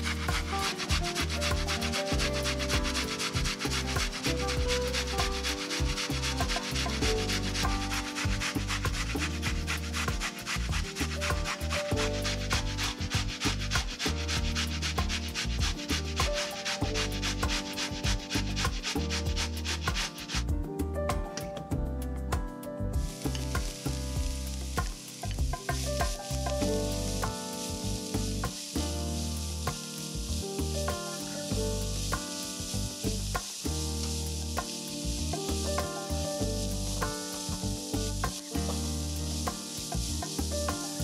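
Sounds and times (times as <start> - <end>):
carrot grating on metal grater: 0.0 - 20.2
background music: 0.0 - 41.0.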